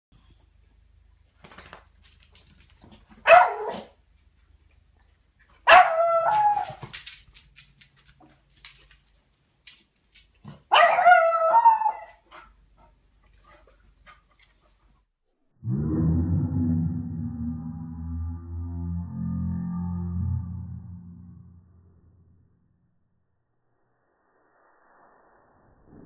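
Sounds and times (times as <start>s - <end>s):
dog barking: 3.2s - 4.0s, 5.7s - 6.4s, 10.7s - 12.1s.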